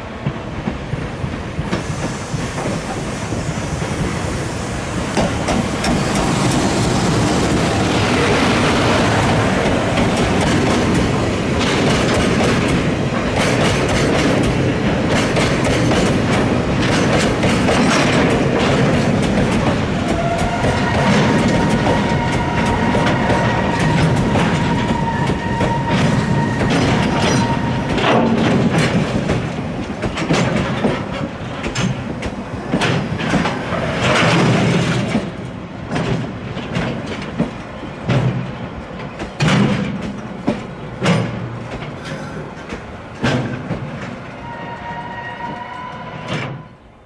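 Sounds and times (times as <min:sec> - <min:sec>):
train wheels clattering over rail joints: 0:00.2 - 0:44.6
high wheel squeal: 0:20.1 - 0:28.0, 0:44.4 - 0:46.9.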